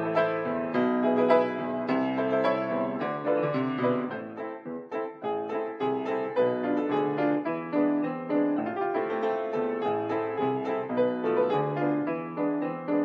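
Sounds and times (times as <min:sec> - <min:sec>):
grand piano playing: 0:00.0 - 0:13.0.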